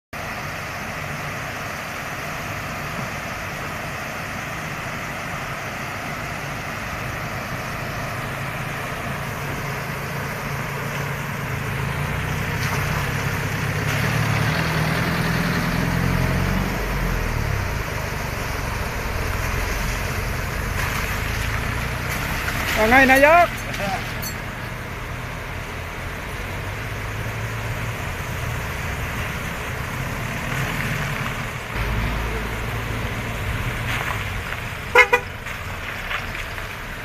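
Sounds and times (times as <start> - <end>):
vehicle engines driving slowly: 0.2 - 37.0
water rushing: 0.2 - 37.0.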